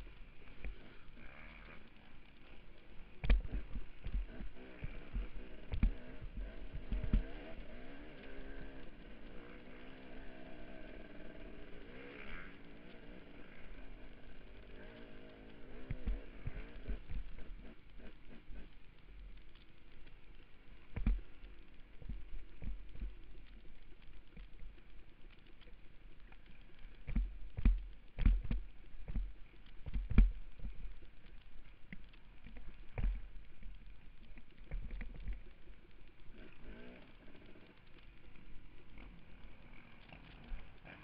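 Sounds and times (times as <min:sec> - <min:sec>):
dirt bike thumps and knocks: 0:03.2 - 0:07.3, 0:27.1 - 0:30.4.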